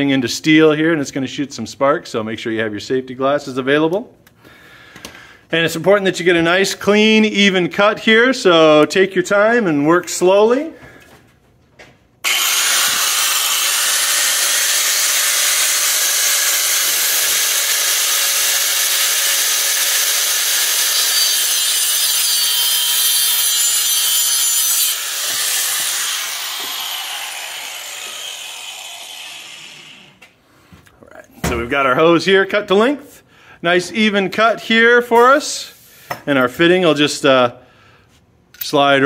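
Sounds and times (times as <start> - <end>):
angle grinder cutting hose: 12.2 - 30.4.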